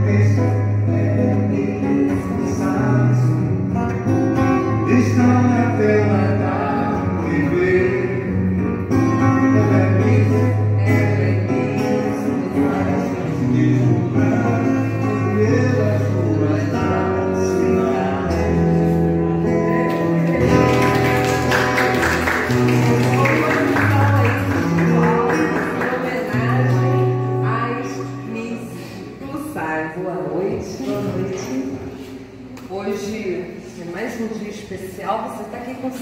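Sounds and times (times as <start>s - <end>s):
person singing: 0.0s - 27.3s
acoustic guitar: 0.0s - 36.0s.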